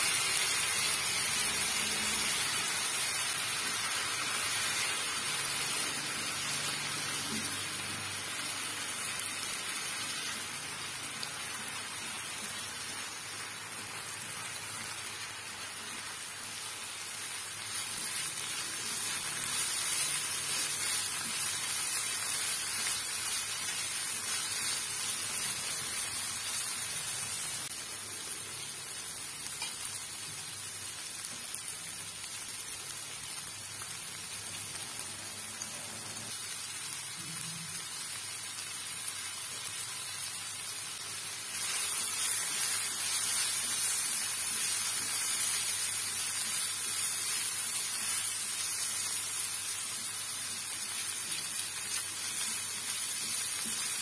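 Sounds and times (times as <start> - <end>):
vegetables sizzling in oil: 0.0 - 54.0.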